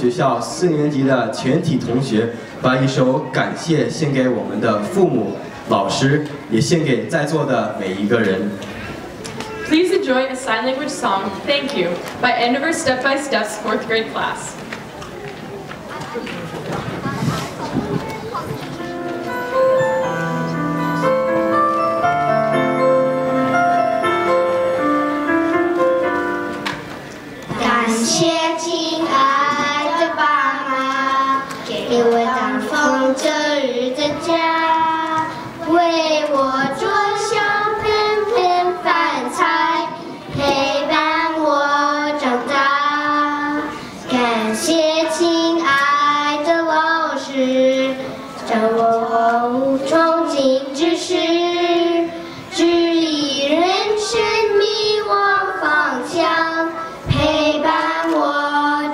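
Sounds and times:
children singing into microphones: 16.5s - 21.2s, 24.1s - 58.9s
instrumental intro music: 18.7s - 27.3s.

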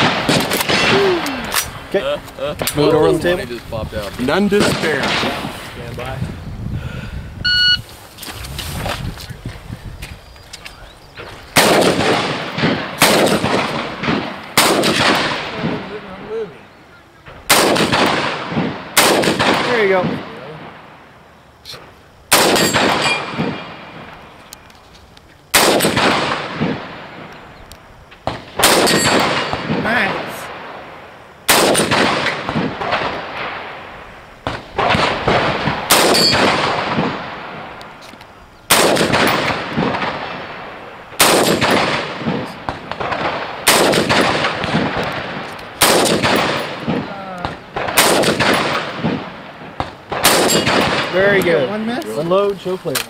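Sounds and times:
rifle shots with echo: 0.0s - 1.8s, 4.4s - 5.6s, 11.5s - 16.5s, 17.3s - 21.0s, 22.3s - 24.2s, 25.5s - 27.4s, 28.2s - 37.8s, 38.7s - 52.4s.

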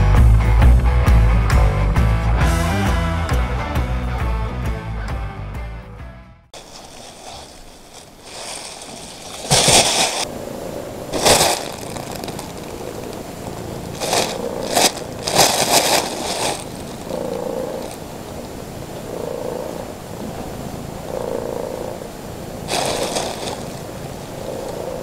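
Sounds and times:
plastic bag rustling: 6.6s - 10.3s, 11.1s - 18.1s, 22.7s - 24.0s.

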